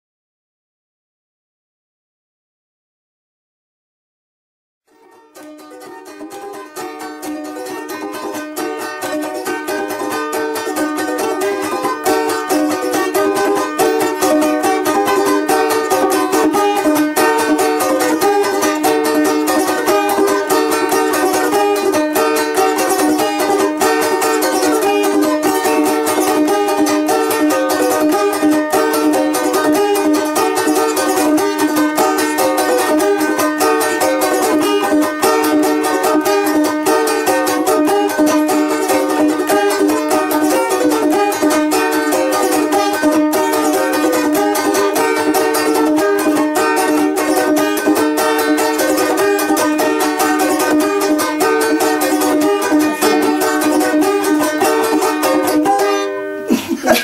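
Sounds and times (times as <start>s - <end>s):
balalaikas strumming folk tune: 4.9s - 57.0s.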